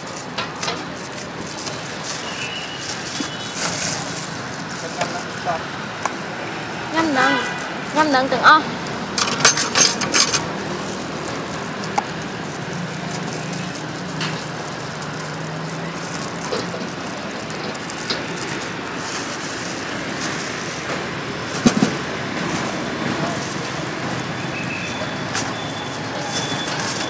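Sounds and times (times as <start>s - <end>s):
street traffic: 0.0s - 27.0s.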